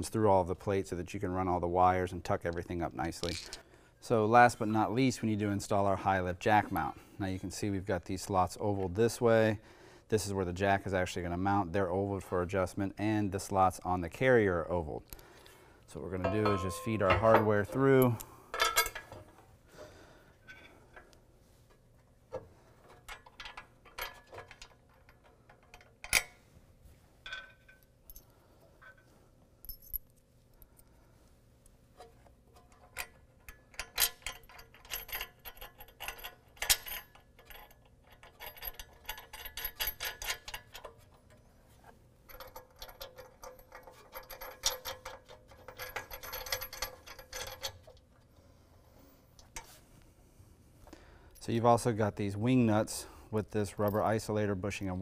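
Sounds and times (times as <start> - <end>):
metal bolts and nuts clinking: 2.3 - 5.0, 15.9 - 19.4, 22.3 - 26.4, 27.2 - 30.2, 32.0 - 41.4, 42.3 - 48.0.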